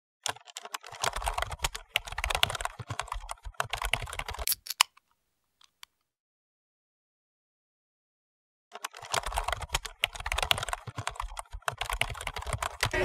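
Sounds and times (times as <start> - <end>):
keyboard typing: 0.2 - 4.9, 8.7 - 13.0.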